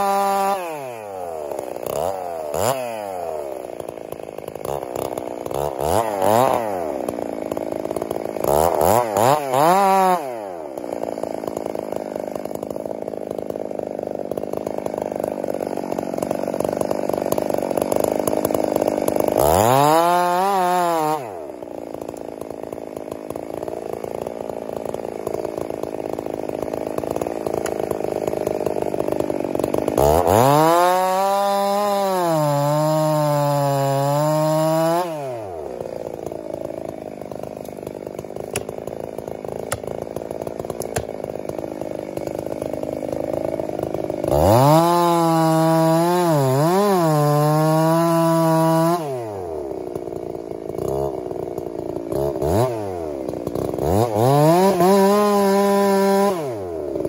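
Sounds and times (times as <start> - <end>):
chainsaw idling: 0.0 - 57.0
chainsaw revving: 0.0 - 57.0.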